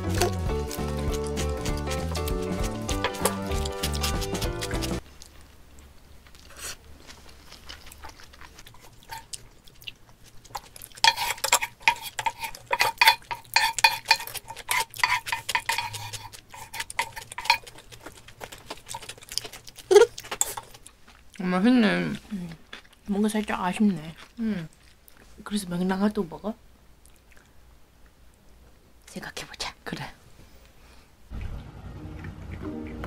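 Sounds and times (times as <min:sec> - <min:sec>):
spoon and chopsticks scraping pan: 0:00.0 - 0:05.0, 0:10.5 - 0:18.1, 0:20.4 - 0:20.7.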